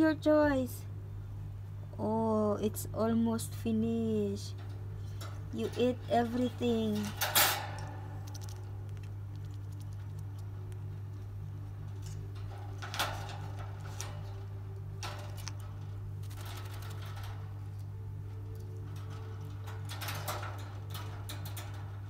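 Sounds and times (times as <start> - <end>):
steady low hum: 0.0 - 22.0
parrot clicking in wire cage: 4.6 - 22.0.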